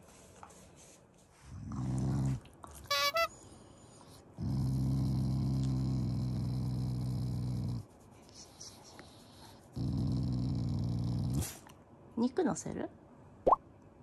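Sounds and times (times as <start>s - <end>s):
dog growling low: 1.5s - 2.5s, 4.4s - 7.8s, 9.7s - 11.6s.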